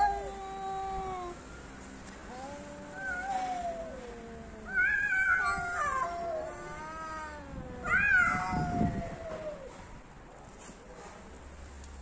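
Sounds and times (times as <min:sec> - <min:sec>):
cats yowling: 0:00.0 - 0:01.4, 0:02.3 - 0:09.8.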